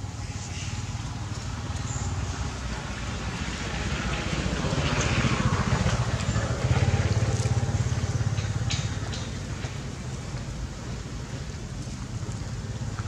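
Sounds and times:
motor engine running: 0:03.7 - 0:13.0.

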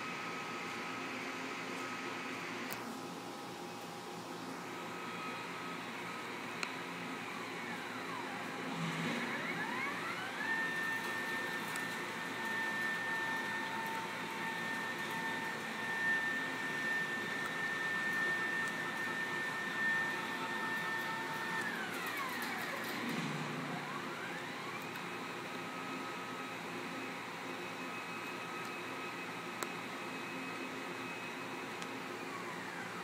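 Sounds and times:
drive motors whining: 0:05.0 - 0:26.7.

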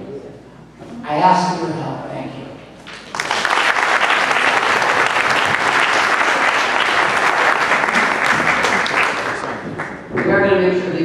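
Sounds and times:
audience applauding: 0:02.9 - 0:10.4.

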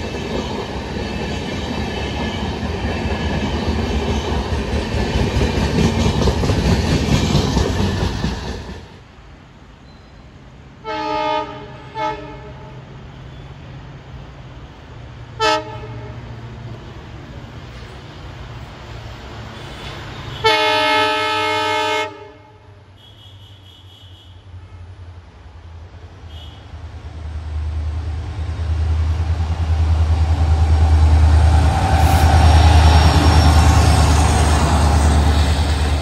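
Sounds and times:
train wheels clattering over rail joints: 0:00.0 - 0:09.0
locomotive horn blasts: 0:10.8 - 0:12.7, 0:15.4 - 0:16.2, 0:20.3 - 0:25.0.

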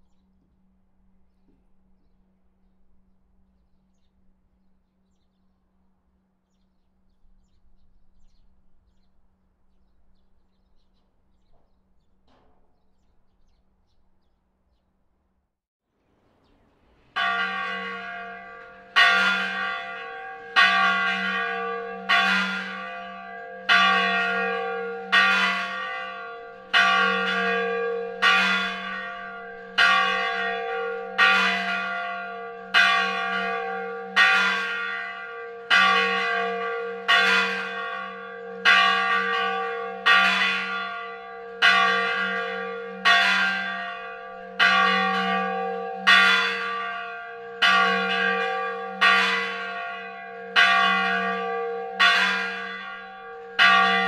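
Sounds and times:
church bell tolling: 0:17.1 - 0:54.0.

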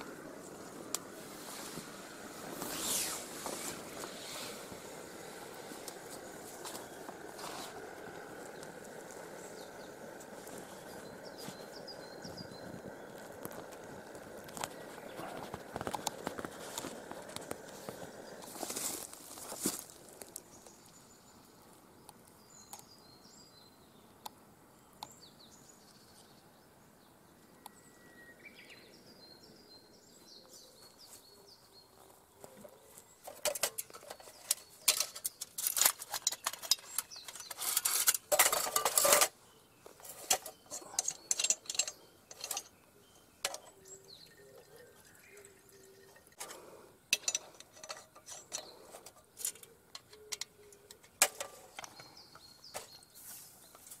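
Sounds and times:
metal camp stove clinking: 0:03.4 - 0:20.4, 0:33.2 - 0:53.0
faint bird chirps: 0:03.9 - 0:38.8, 0:39.4 - 0:54.0.

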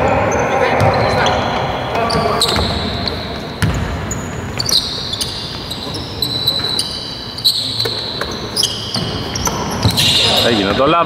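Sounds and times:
sneakers squeaking: 0:00.0 - 0:11.0
basketball bouncing: 0:00.6 - 0:05.8, 0:07.8 - 0:10.2.

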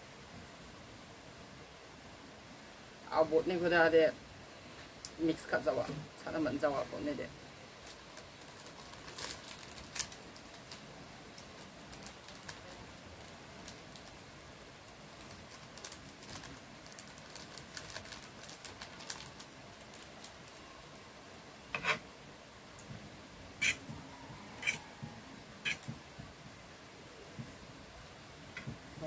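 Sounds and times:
plastic sachets crinkling: 0:07.8 - 0:21.0.

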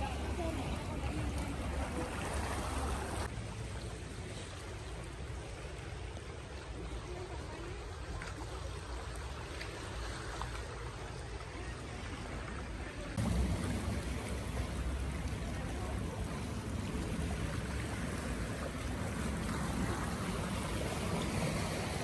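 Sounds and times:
water lapping: 0:00.0 - 0:22.0
low rumble: 0:13.2 - 0:21.1.

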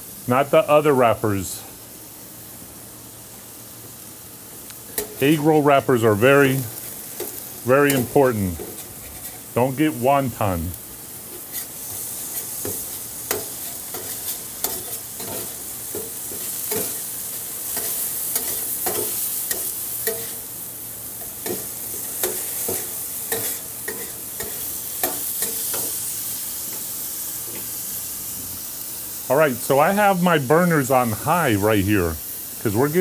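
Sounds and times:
meat sizzling on a griddle: 0:00.0 - 0:33.0
metal spatula scraping griddle: 0:04.9 - 0:09.9, 0:11.2 - 0:20.5, 0:21.2 - 0:26.0.

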